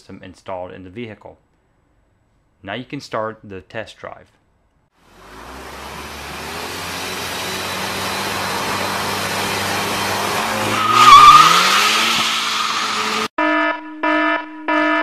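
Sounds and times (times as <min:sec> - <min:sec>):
car engine revving: 0:05.0 - 0:13.3
tyres squealing: 0:06.7 - 0:13.3.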